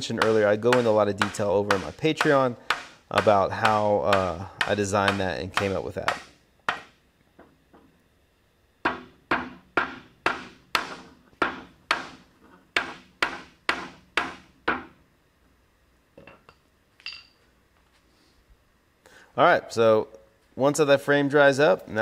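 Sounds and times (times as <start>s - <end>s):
hammer knocking on wood: 0.0s - 7.9s, 8.8s - 12.2s, 12.8s - 14.9s.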